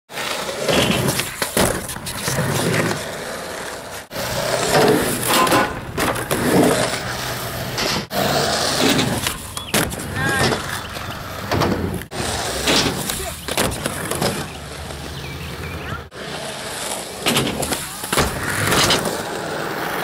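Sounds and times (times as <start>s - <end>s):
skateboard wheels rolling on concrete: 0.1s - 20.0s.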